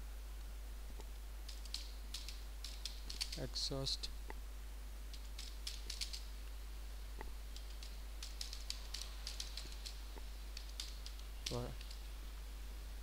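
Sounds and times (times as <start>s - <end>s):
steady low hum: 0.0s - 13.0s
keyboard typing: 7.5s - 12.0s.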